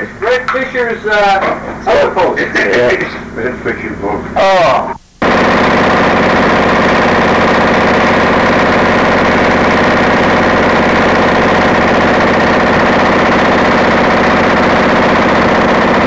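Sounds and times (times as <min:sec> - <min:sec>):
vehicle engine idling: 0:05.2 - 0:16.0.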